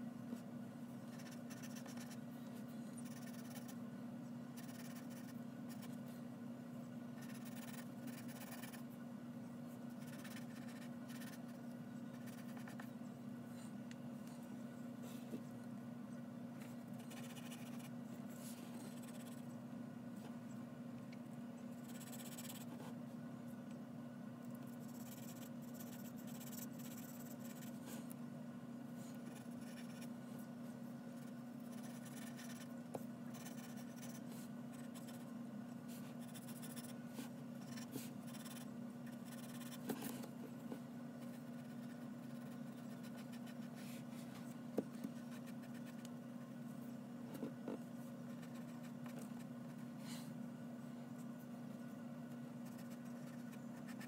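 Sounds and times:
steady low hum: 0.0 - 54.0
pencil scratching on paper: 1.1 - 2.2, 3.0 - 3.8, 4.6 - 6.0, 7.2 - 8.8, 10.0 - 12.9, 17.0 - 17.9, 21.8 - 22.9, 24.8 - 27.8, 29.2 - 30.1, 31.2 - 32.7, 33.3 - 35.3, 37.7 - 39.8, 41.2 - 43.8, 45.1 - 46.1, 48.3 - 49.9, 52.6 - 54.0.

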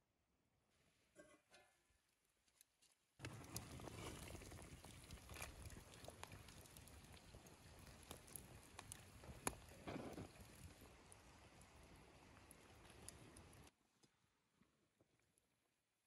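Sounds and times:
broth boiling with sharp pops: 3.2 - 14.2.

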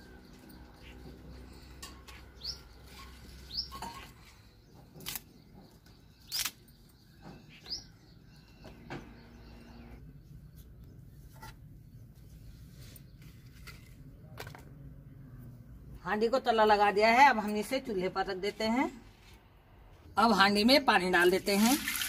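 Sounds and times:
small bird chirping: 0.0 - 13.6
dry sticks snapping: 6.3 - 6.6.

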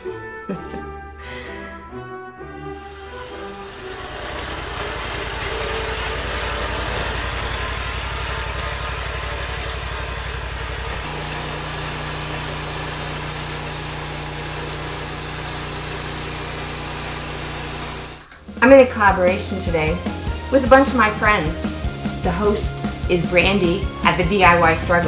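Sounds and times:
engine droning: 2.7 - 18.3
bandsaw blade sawing a log: 2.8 - 18.3.

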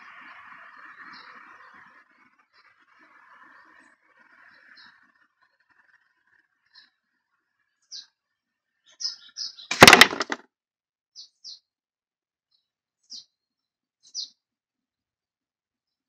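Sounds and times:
small birds chirping: 0.2 - 9.7, 11.1 - 11.7, 12.5 - 14.5
sharp rattling clatter: 9.7 - 10.4.

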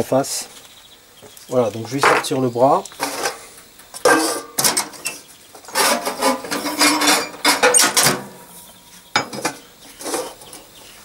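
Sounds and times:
metal part rustling and clattering: 3.0 - 3.4, 4.0 - 8.4.

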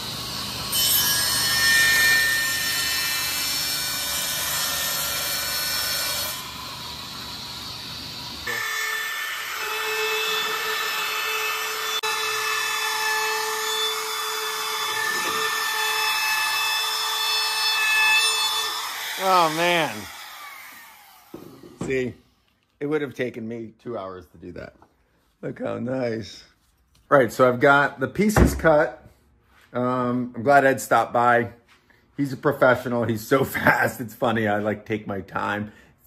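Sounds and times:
table saw cutting wood: 0.0 - 22.1
trim router humming: 6.4 - 22.0.

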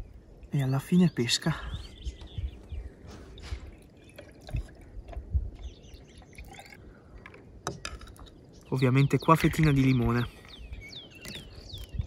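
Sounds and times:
scattered drips: 3.3 - 7.4
liquid trickling into a jar: 3.3 - 8.7.

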